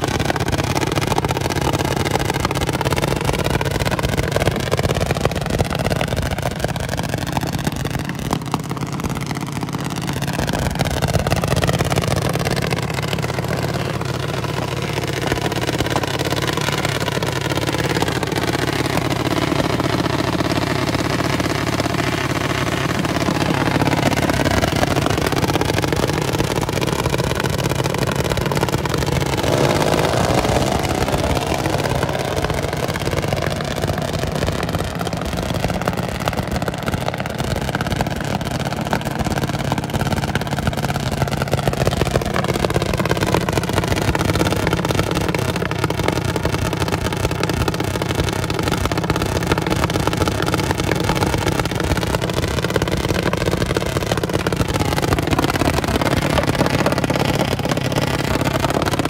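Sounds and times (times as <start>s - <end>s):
single-cylinder engine idling: 0.0s - 59.0s.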